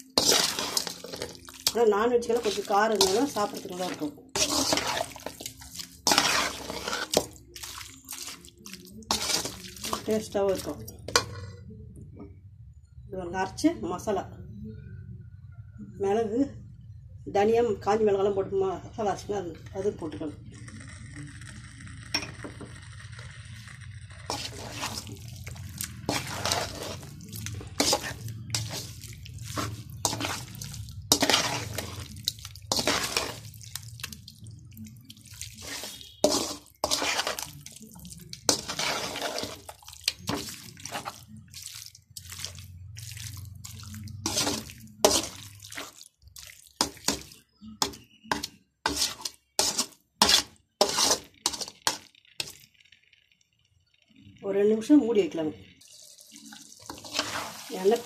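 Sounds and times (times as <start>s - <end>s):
metal spoon scraping pot: 0.0s - 11.6s, 19.8s - 46.0s, 46.8s - 52.8s, 56.8s - 58.0s.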